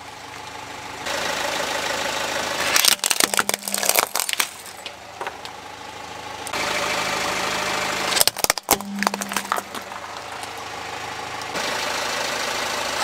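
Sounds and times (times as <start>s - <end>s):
car engine hum: 0.0s - 13.0s
plastic toys cracking and crunching: 2.7s - 4.9s, 8.2s - 10.5s.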